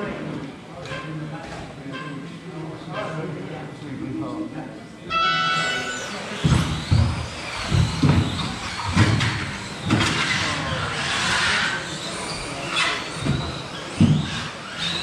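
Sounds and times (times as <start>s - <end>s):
rc car motors whining: 5.4s - 15.0s.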